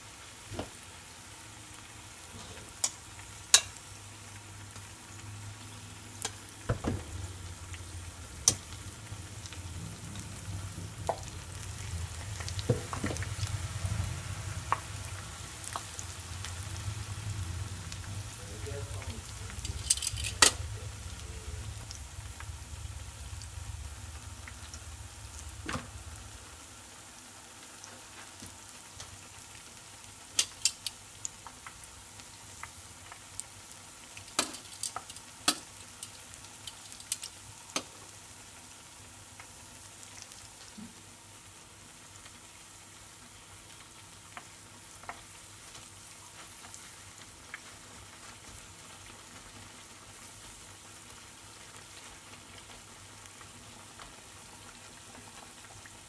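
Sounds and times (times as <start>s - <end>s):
oil sizzling hiss: 0.0s - 56.0s
oil popping: 11.0s - 13.9s.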